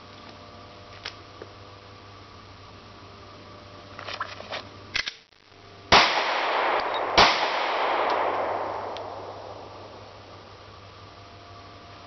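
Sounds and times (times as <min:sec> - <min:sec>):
gunshots echoing: 0:05.9 - 0:10.5.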